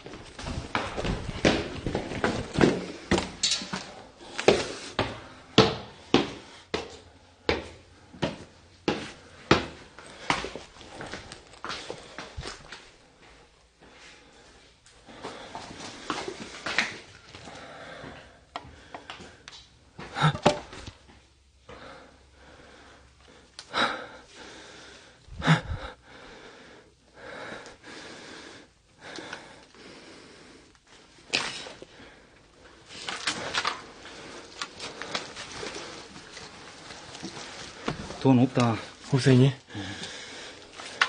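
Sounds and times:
rustling and scuffing in debris: 0.0 - 4.6, 32.8 - 39.5.

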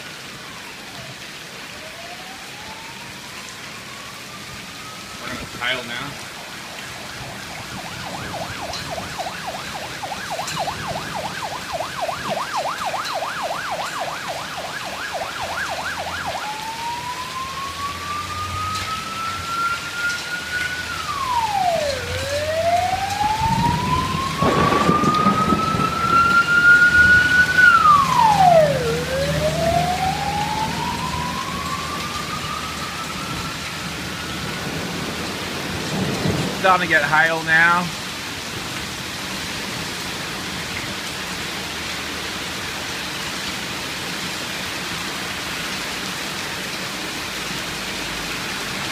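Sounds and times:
emergency vehicle siren: 0.0 - 37.9
heavy rain: 0.0 - 48.9
thunder rumbling: 6.2 - 37.0.

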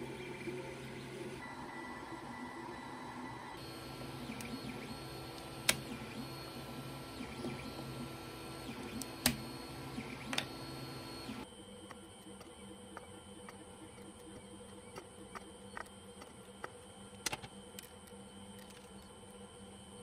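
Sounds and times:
printer fans humming with whine: 0.0 - 20.0.

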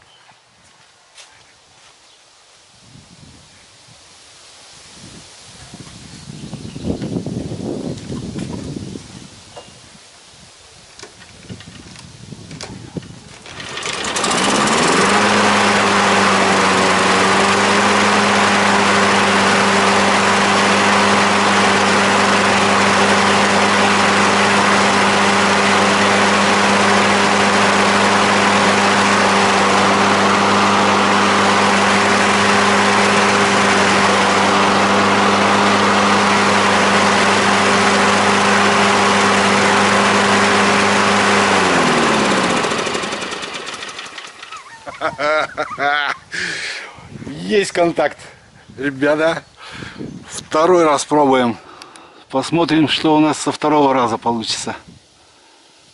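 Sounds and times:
lawn mower engine running: 13.2 - 46.8.

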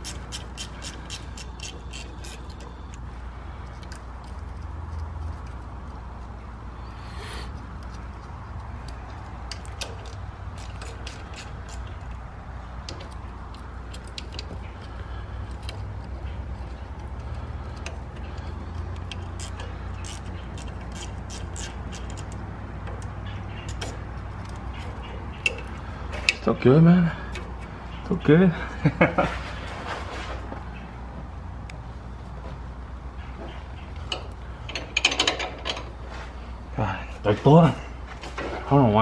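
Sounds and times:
steady low hum: 0.0 - 39.0
metallic clicks of tools on bolt: 7.5 - 12.2, 12.8 - 26.5, 33.8 - 35.9.

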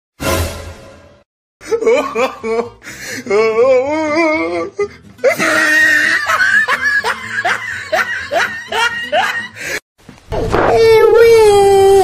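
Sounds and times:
person laughing: 1.6 - 9.8.

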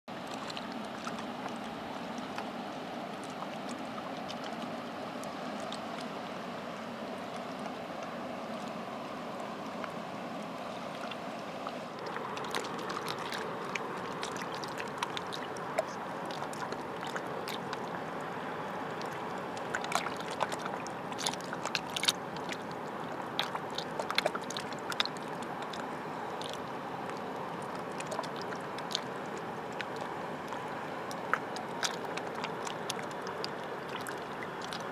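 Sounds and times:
sea water lapping on rocky shore: 0.1 - 34.9
small sharp splashes: 10.8 - 34.9.

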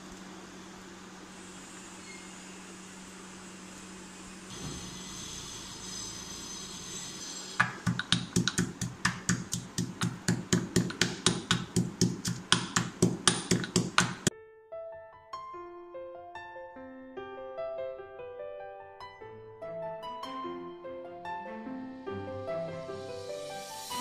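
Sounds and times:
pestle pounding in stone mortar: 7.6 - 14.3
soft piano music: 7.7 - 24.0.

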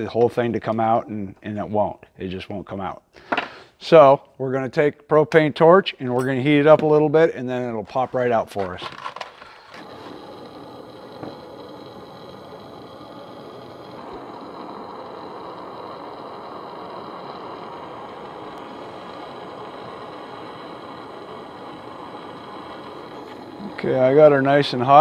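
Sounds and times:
torch flame rushing: 9.3 - 25.0.

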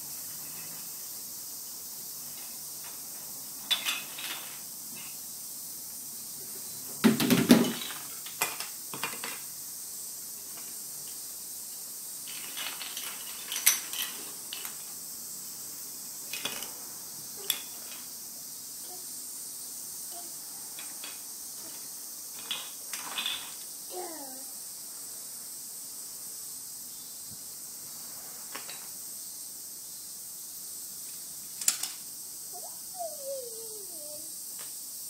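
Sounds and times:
toy bricks clattering on wooden floor: 7.1 - 9.5, 12.3 - 14.9, 16.3 - 16.7, 22.3 - 23.6.

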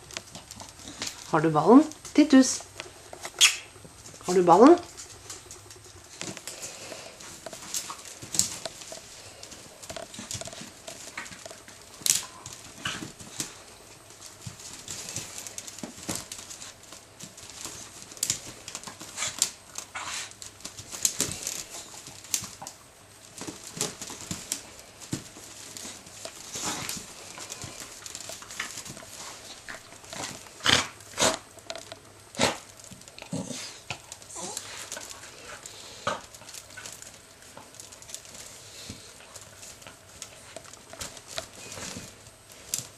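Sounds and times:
puppy scratching fabric and wicker: 0.0 - 42.9.

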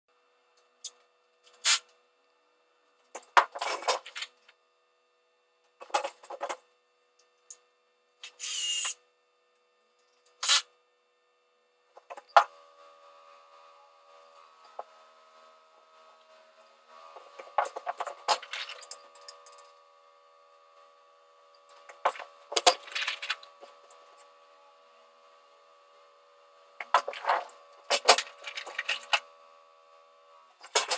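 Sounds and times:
faint steady hum: 0.1 - 30.9
power drill bursts: 8.2 - 9.0.

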